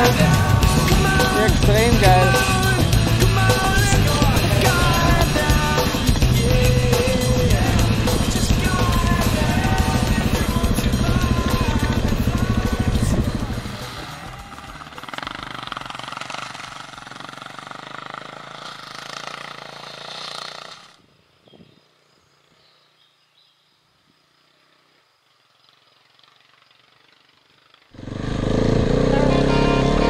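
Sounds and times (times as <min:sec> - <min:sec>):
loud music: 0:00.0 - 0:14.8
motorcycle engine running: 0:00.0 - 0:21.0, 0:25.6 - 0:30.0.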